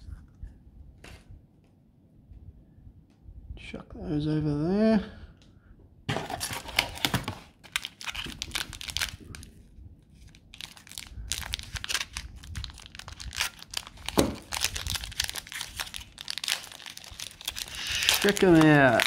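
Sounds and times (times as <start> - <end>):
wrapper crinkling and tearing: 6.2 - 9.6, 10.2 - 19.0.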